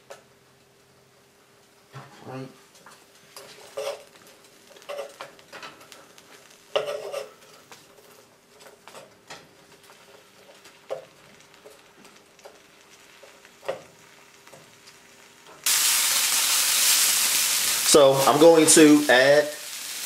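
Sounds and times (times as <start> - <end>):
vegetables and bacon sizzling: 2.7 - 20.0
wooden spoon scraping a pan: 3.3 - 5.3, 6.4 - 9.1.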